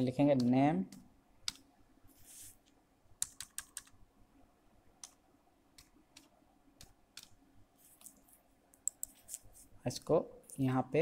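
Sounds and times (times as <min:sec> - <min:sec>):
faint keyboard keystrokes: 0:08.8 - 0:09.4.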